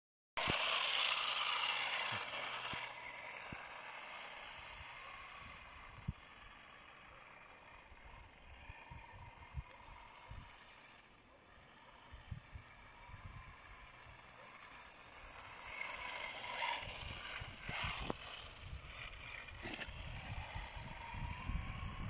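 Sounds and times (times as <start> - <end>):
toy car motor and tyres on ice: 0.4 - 22.0.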